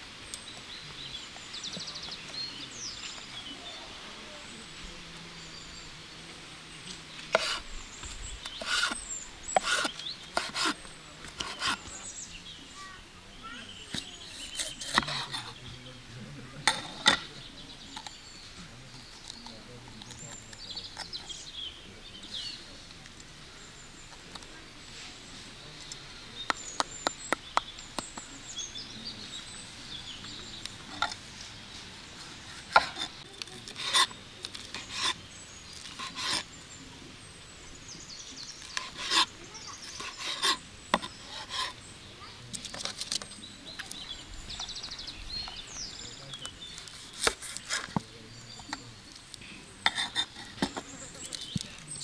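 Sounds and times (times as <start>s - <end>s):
small birds chirping: 0.0s - 52.0s
kitchen utensils knocking and scraping: 8.6s - 11.8s.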